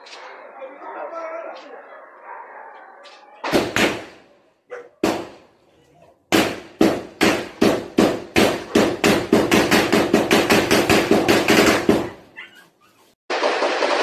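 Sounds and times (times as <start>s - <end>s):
gunshots with echo: 3.4s - 4.3s, 6.3s - 12.1s.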